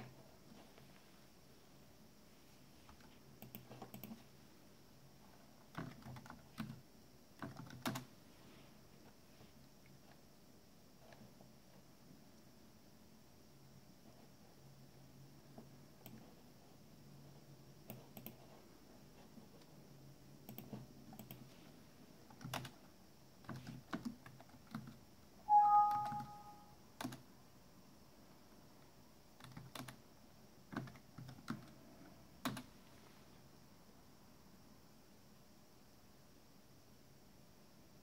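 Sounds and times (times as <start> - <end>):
keyboard typing: 2.9 - 4.2, 5.7 - 6.8, 7.4 - 8.1, 17.8 - 18.6, 20.4 - 21.5, 22.2 - 22.8, 23.4 - 27.2, 29.4 - 30.0, 30.7 - 31.7
two-note electronic beep: 25.5 - 26.7.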